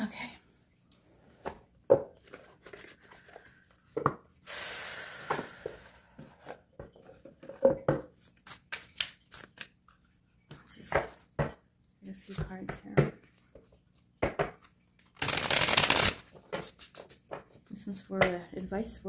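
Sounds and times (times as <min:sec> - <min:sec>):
cards being shuffled: 0:08.1 - 0:10.0, 0:13.2 - 0:17.6.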